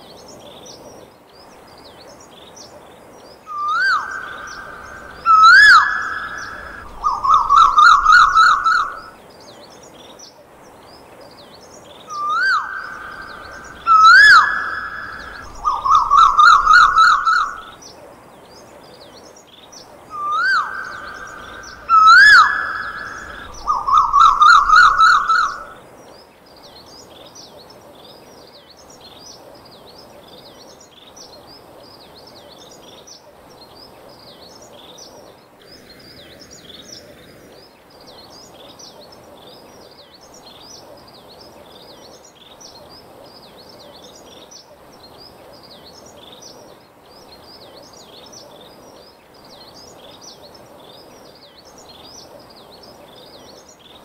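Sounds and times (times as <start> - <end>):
faint high chirping: 3.5 - 9.2, 12.0 - 17.8, 20.1 - 25.8.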